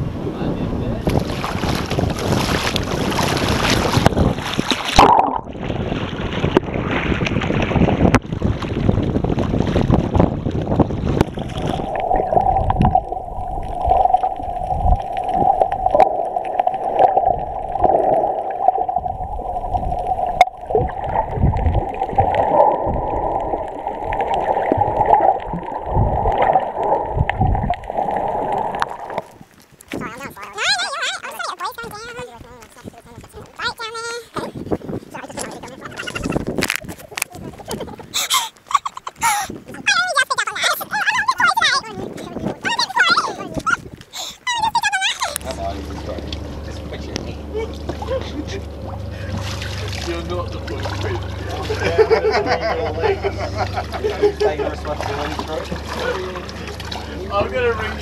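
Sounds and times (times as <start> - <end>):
wind: 0.0 - 58.0
water splashing: 0.9 - 58.0
muffled underwater gurgling: 1.9 - 38.2, 39.2 - 58.0.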